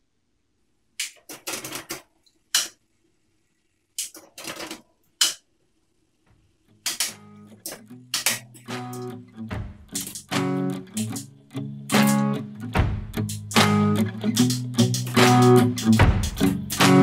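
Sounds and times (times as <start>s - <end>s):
guitar music: 6.9s - 17.0s.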